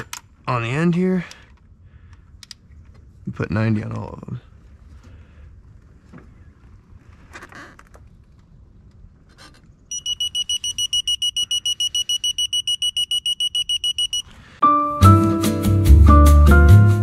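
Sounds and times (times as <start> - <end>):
torque wrench beeping rapidly: 9.9 - 14.2.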